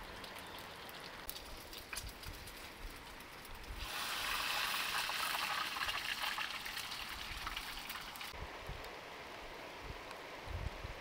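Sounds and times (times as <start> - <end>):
rain hissing: 2.7 - 8.4.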